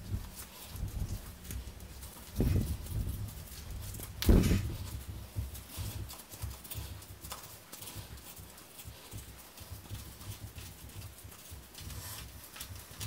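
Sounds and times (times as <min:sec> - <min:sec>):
thump: 0:04.2 - 0:04.8.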